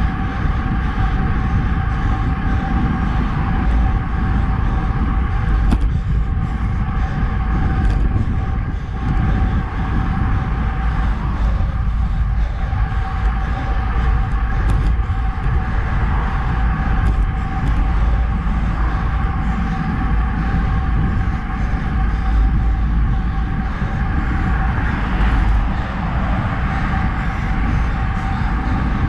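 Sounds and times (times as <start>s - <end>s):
bicycle tyre road noise: 0.0s - 29.0s
steady high hum: 0.0s - 29.0s
wind buffeting: 0.0s - 29.0s.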